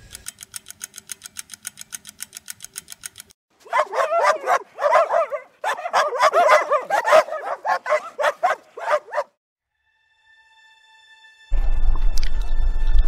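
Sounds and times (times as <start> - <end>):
dog yipping and barking: 3.6 - 9.4.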